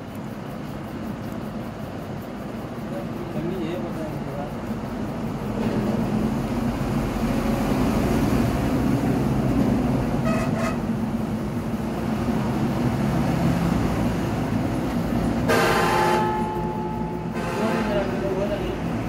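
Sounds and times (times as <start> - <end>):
traffic rumble: 0.0 - 19.0
vehicle horn tooting: 10.2 - 10.8, 15.5 - 16.6, 17.3 - 18.2.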